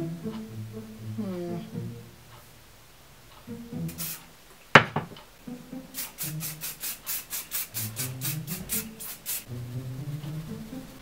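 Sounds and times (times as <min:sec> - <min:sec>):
hairbrush rasping through hair: 0:03.9 - 0:04.3, 0:06.0 - 0:09.5
sharp knock: 0:04.7 - 0:05.2.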